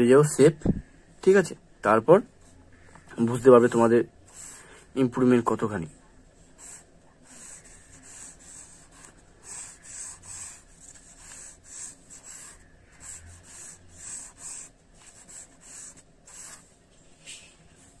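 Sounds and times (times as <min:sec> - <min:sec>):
pencil scratching on paper: 0:04.2 - 0:04.9, 0:06.4 - 0:16.8.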